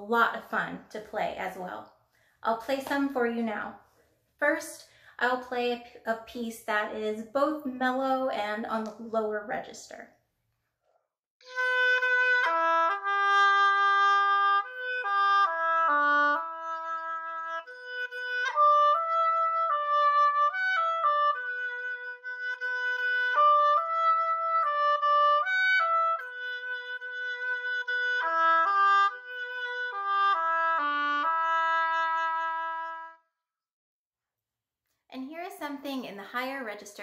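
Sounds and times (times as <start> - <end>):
solo oboe melody: 11.4 - 33.4.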